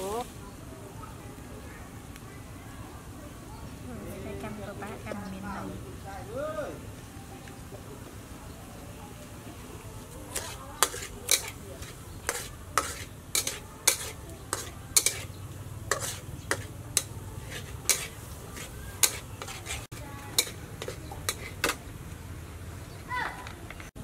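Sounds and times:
oil sizzling in a wok: 0.0 - 0.9, 9.3 - 22.0
spatula clinking against pan: 10.3 - 15.3, 15.9 - 21.8
metal spatula scraping a wok: 10.3 - 21.8.

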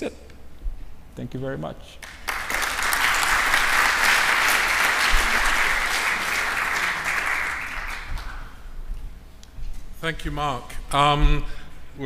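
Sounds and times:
audience applauding: 2.0 - 8.6.

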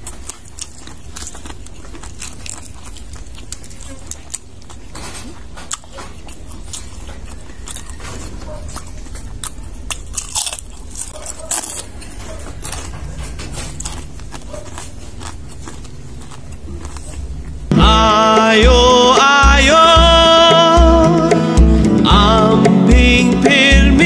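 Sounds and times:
crunching and chewing: 0.0 - 17.7.

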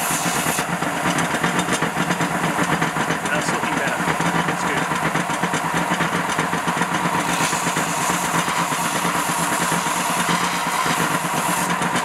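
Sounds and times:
metal grinding on sanding belt: 0.0 - 0.8, 6.0 - 12.0
belt sander running: 0.0 - 12.0.

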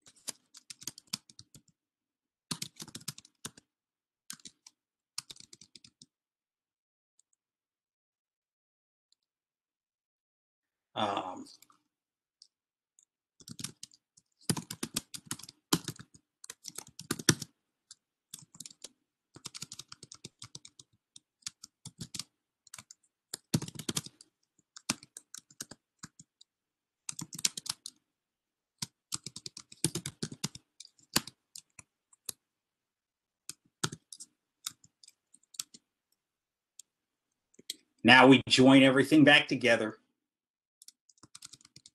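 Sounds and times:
keyboard typing: 0.0 - 1.8, 2.5 - 3.7, 4.3 - 6.1, 12.4 - 28.0, 28.8 - 32.4, 33.4 - 35.9, 40.8 - 41.9.

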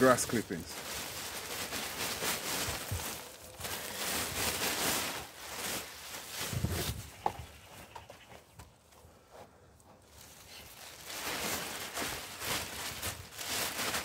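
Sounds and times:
grass clippings shaken into bin: 0.0 - 7.1, 10.5 - 14.0
plastic bin bag crinkling: 0.0 - 7.5, 10.2 - 14.0.

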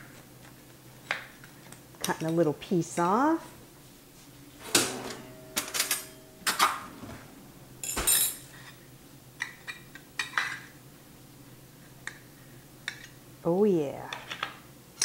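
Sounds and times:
utensils clinking and scraping pan: 4.6 - 8.8.

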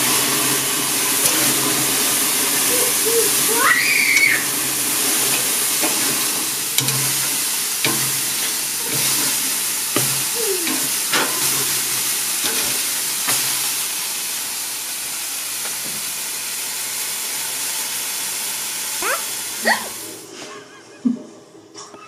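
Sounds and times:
patties sizzling on grill: 0.0 - 20.4
metal tongs clicking: 6.8 - 9.4.

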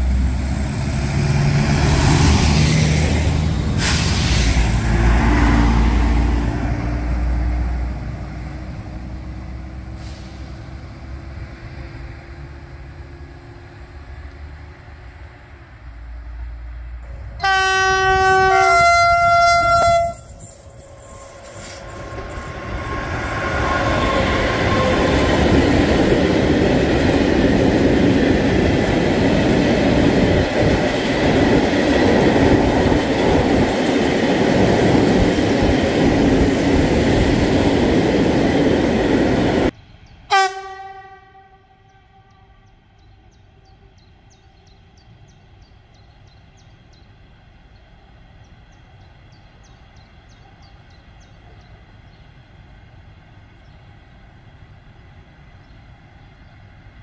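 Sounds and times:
freight train wheels rumbling: 0.0 - 57.0
short locomotive horn toot: 17.4 - 21.8, 40.3 - 42.7
two-note train horn: 17.4 - 21.8, 40.3 - 42.8.

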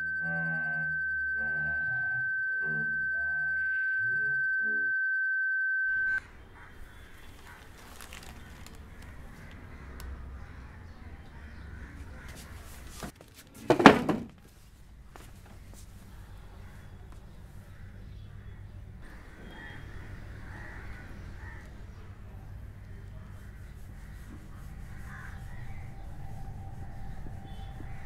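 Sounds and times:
high-pitched ringing tone: 0.0 - 6.2, 25.8 - 28.0.

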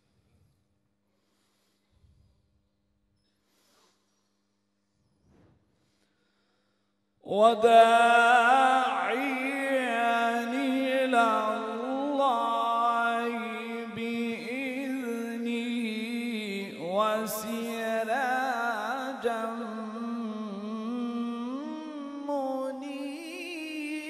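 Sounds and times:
breath: 0.0 - 7.2
man reciting melodically: 7.2 - 24.0.

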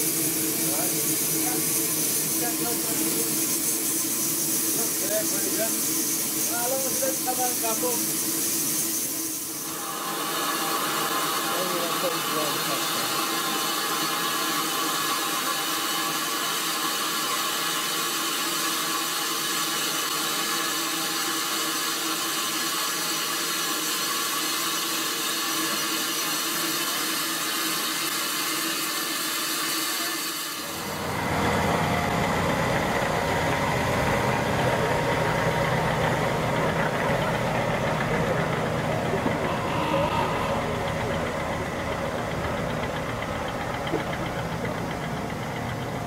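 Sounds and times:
steam hissing: 0.0 - 46.0
diesel locomotive engine idling: 30.7 - 46.0.

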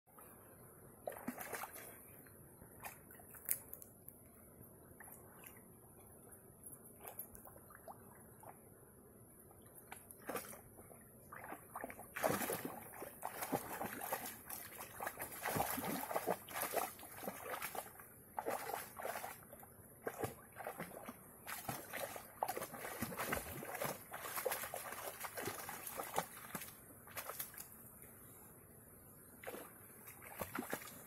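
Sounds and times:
dog splashing in water: 1.1 - 1.9, 11.3 - 19.4, 20.0 - 27.6, 29.4 - 31.0.

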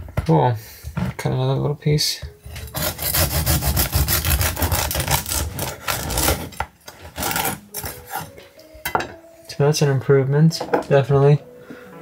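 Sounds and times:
bread knife sawing crust: 2.6 - 8.3.

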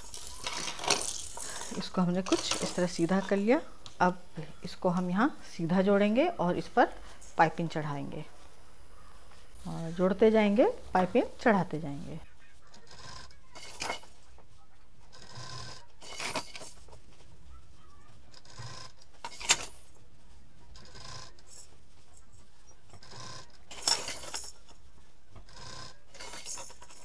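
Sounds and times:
fabric rubbing: 8.2 - 27.0.

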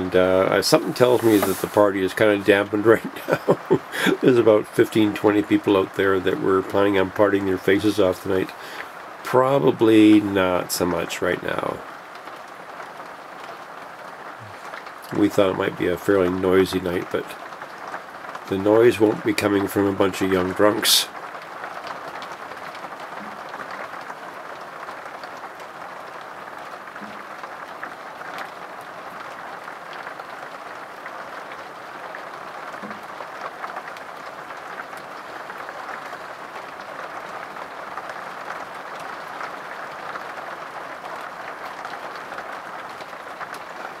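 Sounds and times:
rain on a vehicle roof: 0.0 - 44.0.

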